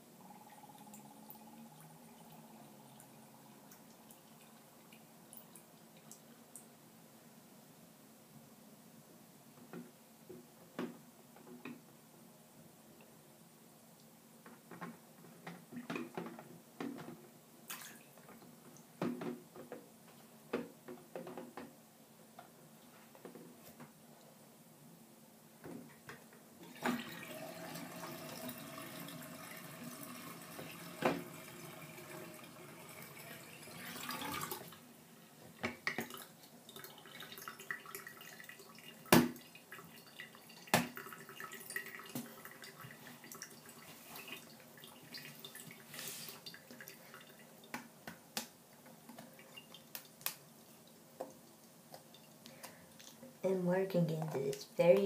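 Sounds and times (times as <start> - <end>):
water dripping: 0.2 - 6.7, 35.6 - 53.4
water running in a sink: 26.6 - 34.8, 35.8 - 47.6.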